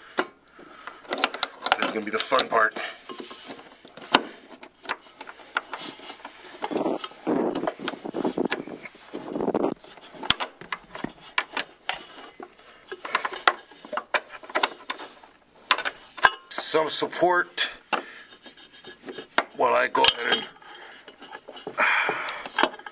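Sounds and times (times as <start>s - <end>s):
metallic clicks and rattles: 0.2s - 8.8s
rubbing and scuffing: 18.1s - 19.6s.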